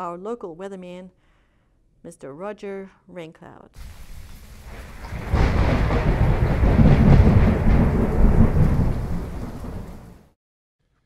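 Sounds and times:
deep rolling thunder: 0:03.8 - 0:10.2
steady rain: 0:03.8 - 0:10.3.

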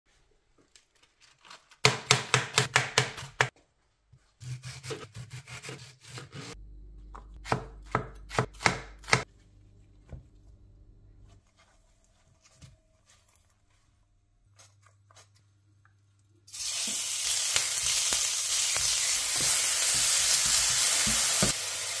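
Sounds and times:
knife chopping vegetables on board: 0:01.8 - 0:03.6, 0:04.4 - 0:06.6, 0:07.2 - 0:09.3, 0:19.3 - 0:21.6.

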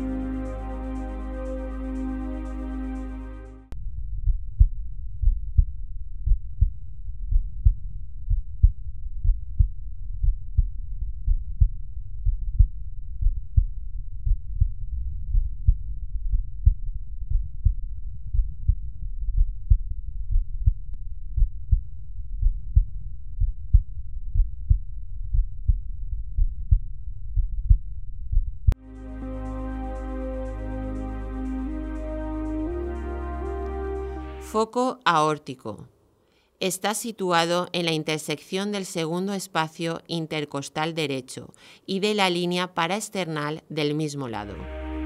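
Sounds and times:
heartbeat lub-dub: 0:04.2 - 0:34.6.

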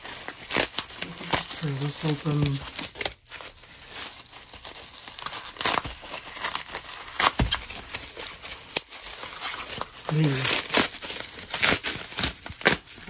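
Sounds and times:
bubble wrap crinkling and rustling: 0:00.0 - 0:13.0
bubble wrap ripping: 0:00.0 - 0:13.0.

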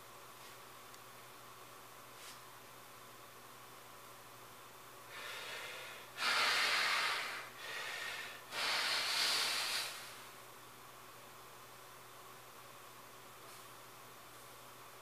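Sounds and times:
man breathing hard: 0:05.1 - 0:10.3.

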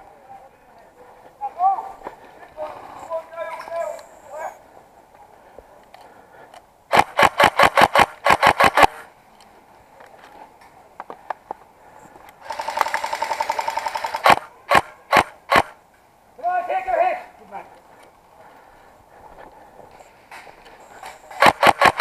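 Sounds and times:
airsoft rifle shots: 0:06.9 - 0:09.0, 0:12.5 - 0:15.8, 0:21.3 - 0:22.0.

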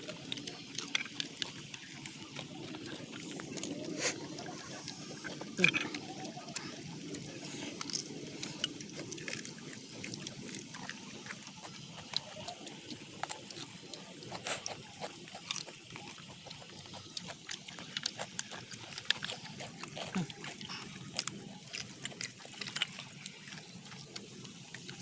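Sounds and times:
wet chewing and lip-smacking: 0:00.0 - 0:25.0.

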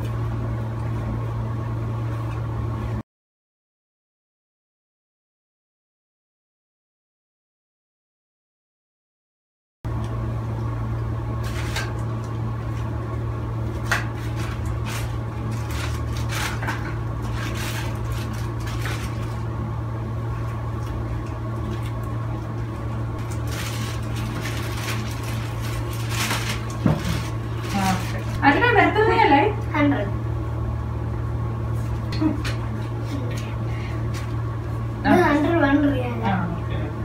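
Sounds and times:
steady low hum: 0:09.9 - 0:37.0
plastic bag crinkling: 0:14.2 - 0:19.5, 0:23.2 - 0:28.5.

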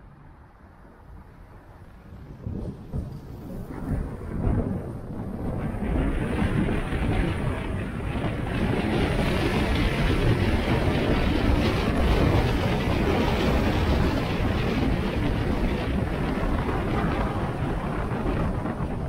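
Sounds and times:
car road and wind rumble: 0:00.0 - 0:19.0.

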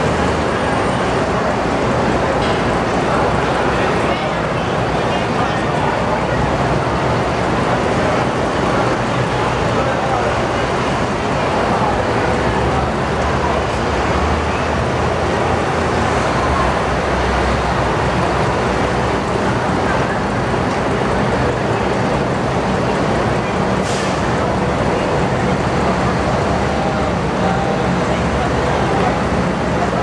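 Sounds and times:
crowd murmur and shuffling: 0:00.0 - 0:30.0
short hiss: 0:23.8 - 0:24.2.

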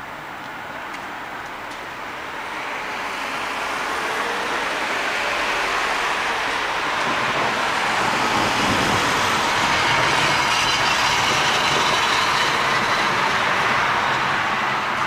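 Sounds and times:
heavy rain pouring: 0:02.0 - 0:12.7.

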